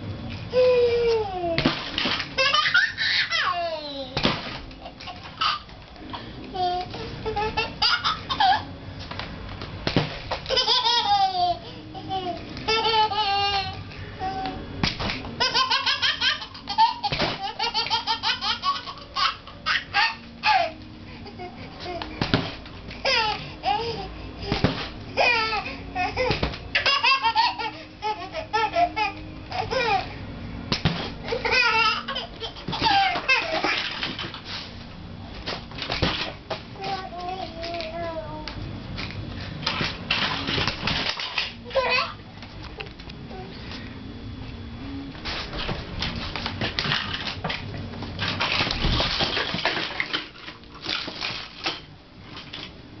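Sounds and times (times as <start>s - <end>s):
baby laughing: 2.4s - 5.7s, 6.6s - 8.7s, 10.4s - 13.8s, 15.4s - 22.1s, 25.2s - 30.0s, 31.2s - 34.2s
plastic toys clattering: 32.8s - 34.6s, 39.6s - 41.9s, 46.0s - 52.7s.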